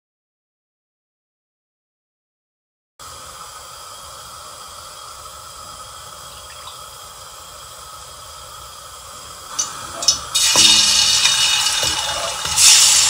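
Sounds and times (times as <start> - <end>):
oil pouring into a pan: 9.5 - 13.0.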